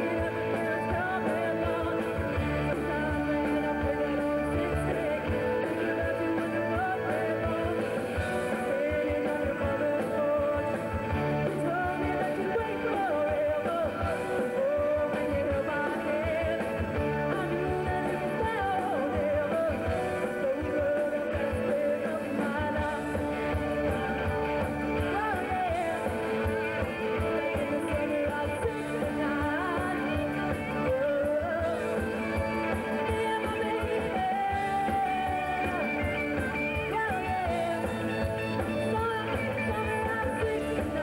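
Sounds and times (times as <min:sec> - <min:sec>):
electric guitars: 0:00.0 - 0:41.0
keyboards: 0:00.0 - 0:41.0
person singing: 0:00.0 - 0:41.0.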